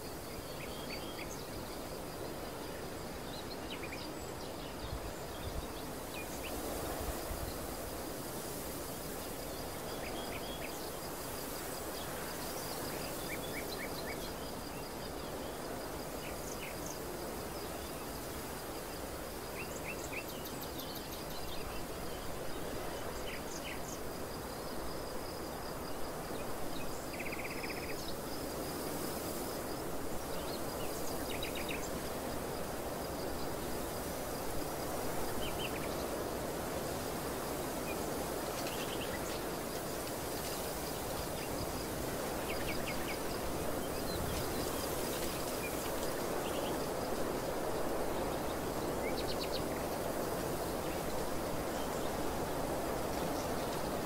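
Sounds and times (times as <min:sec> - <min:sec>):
wind rushing through a field: 0:00.0 - 0:54.0.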